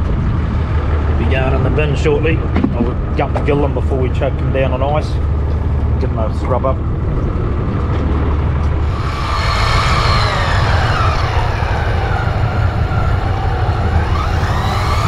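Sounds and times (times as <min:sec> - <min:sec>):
steady low rumble: 0:00.0 - 0:15.0
fishing reel motor whine: 0:08.6 - 0:15.0.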